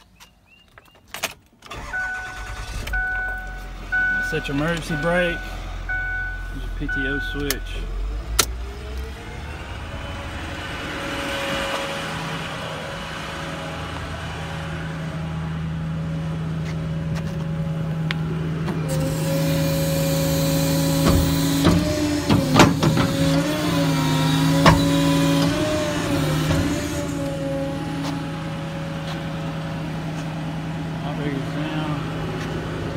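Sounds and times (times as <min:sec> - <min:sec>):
diesel engine running: 0:01.7 - 0:32.9
hydraulic pump whine: 0:18.6 - 0:29.4.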